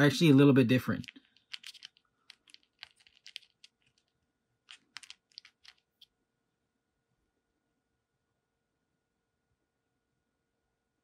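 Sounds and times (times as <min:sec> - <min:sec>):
small beads clicking in plastic box: 0:00.9 - 0:06.1.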